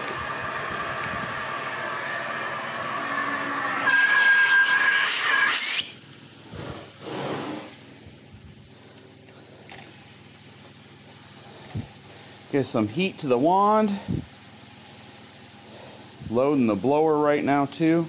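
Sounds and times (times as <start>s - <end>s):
short hissing bursts: 5.6s - 8.0s, 11.1s - 17.8s.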